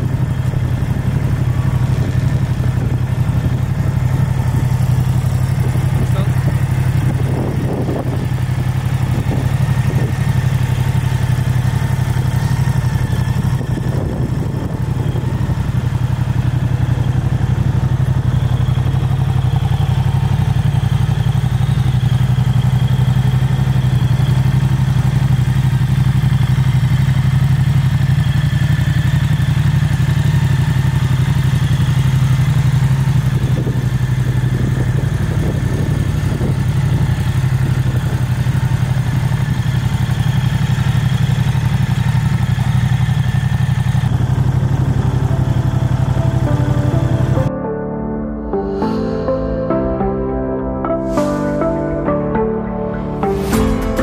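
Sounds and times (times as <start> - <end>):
motorcycle engine idling: 0.0 - 47.5.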